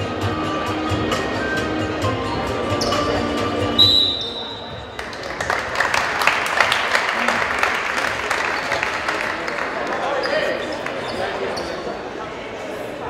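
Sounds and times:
music over loudspeakers: 0.0 - 4.3
crowd chatter: 0.0 - 13.0
sharp claps and knocks: 5.0 - 9.7.

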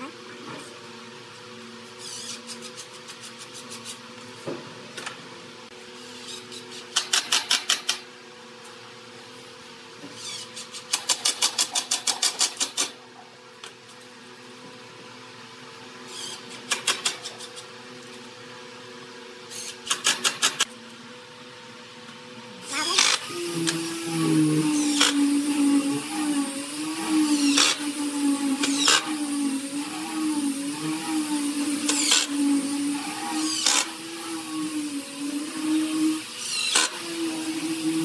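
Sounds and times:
low hum: 23.0 - 36.2
impact driver hammering screws: 27.4 - 27.8, 31.8 - 32.3, 33.4 - 33.9, 36.4 - 37.0.

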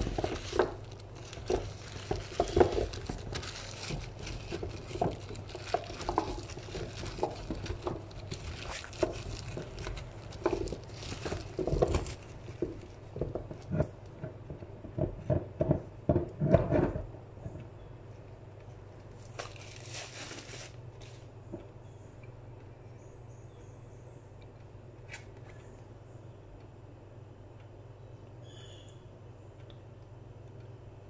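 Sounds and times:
squash pieces knocking in a tray: 0.0 - 17.0.

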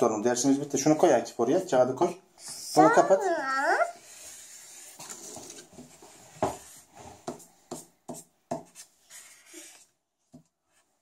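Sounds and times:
marker scribbling on paper: 6.6 - 9.8.

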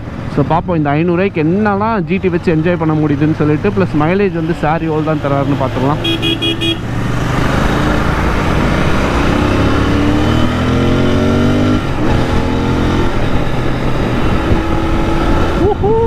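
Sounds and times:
motorcycle engine accelerating: 4.4 - 16.0
wind rush: 6.9 - 16.0.

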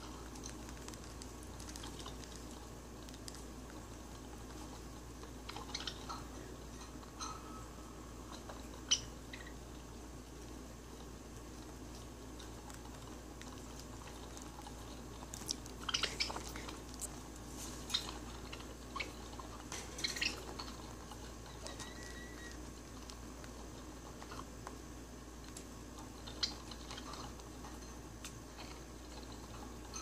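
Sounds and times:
steady low hum: 0.0 - 30.0
budgies chirping: 5.4 - 6.3, 8.3 - 9.6, 15.8 - 16.8, 17.8 - 22.6, 26.1 - 27.3.

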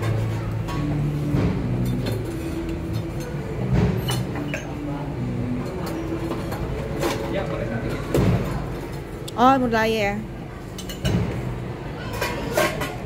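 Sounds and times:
restaurant murmur: 0.0 - 13.0
glass and dishware clinking: 4.0 - 4.8, 10.7 - 11.4.

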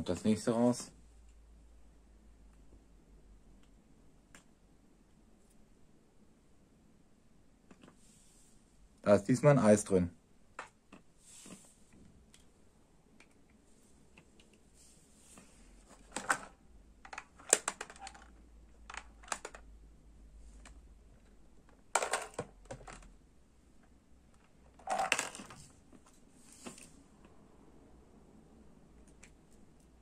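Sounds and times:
plastic toy clicks and rattles: 16.0 - 19.7, 21.7 - 23.1, 24.7 - 25.7.

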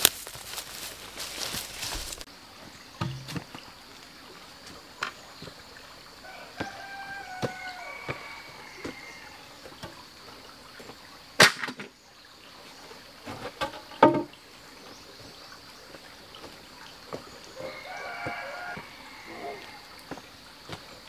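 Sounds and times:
log knocking on rock floor: 3.0 - 3.5, 13.3 - 14.3.

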